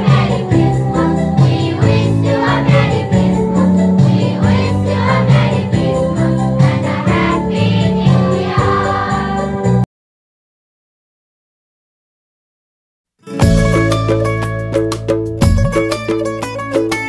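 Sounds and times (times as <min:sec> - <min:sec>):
children's choir singing: 0:00.0 - 0:09.8
percussive beat: 0:13.3 - 0:17.0.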